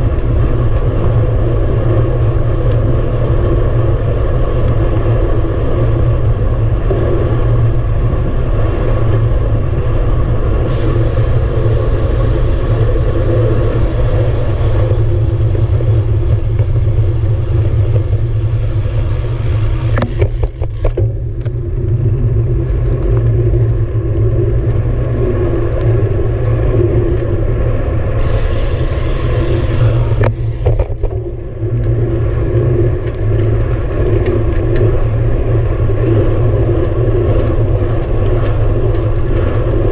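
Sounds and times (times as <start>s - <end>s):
wind buffeting microphone: 0.0s - 39.9s
tyre hiss on asphalt: 10.6s - 20.9s, 28.2s - 31.1s.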